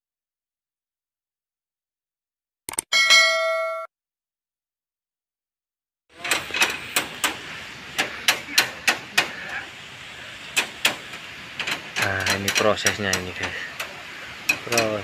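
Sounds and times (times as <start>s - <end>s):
building site background noise: 6.1s - 15.0s.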